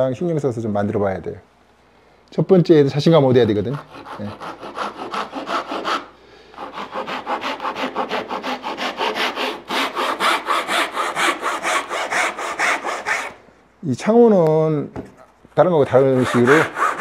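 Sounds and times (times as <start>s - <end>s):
hand saw cutting wood: 3.7s - 13.4s, 16.0s - 17.0s.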